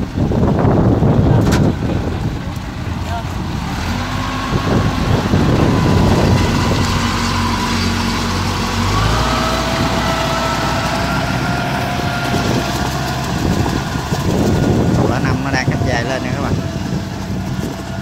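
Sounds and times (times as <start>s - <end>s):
tracked vehicle engine running: 0.0s - 18.0s
whining tone: 3.8s - 18.0s.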